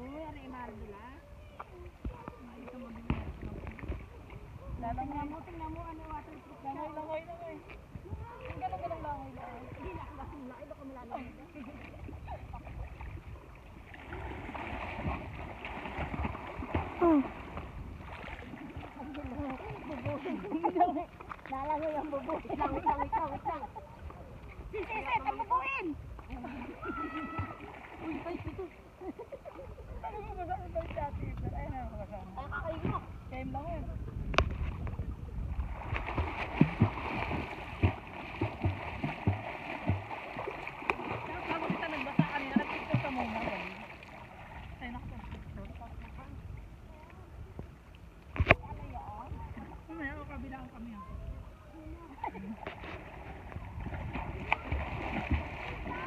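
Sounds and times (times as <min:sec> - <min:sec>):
water splashing from swimmer: 0:05.0 - 0:28.8, 0:35.5 - 0:46.2, 0:52.2 - 0:56.0
limbs slapping water surface: 0:35.9 - 0:44.2.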